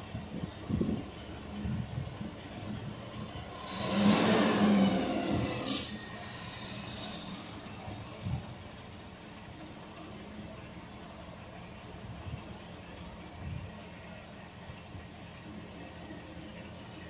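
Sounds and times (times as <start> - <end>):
diesel truck engine revving: 0.0 - 17.0
air brake hiss: 3.7 - 7.9.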